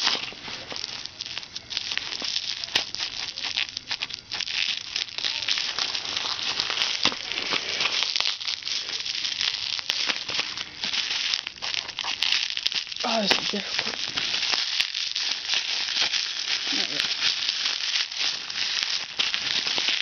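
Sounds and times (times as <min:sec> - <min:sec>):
bubble wrap crinkling: 0:00.0 - 0:20.0.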